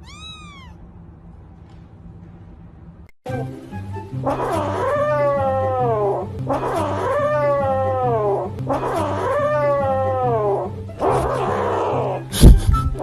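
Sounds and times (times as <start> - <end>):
cat meowing: 0.0 - 0.8.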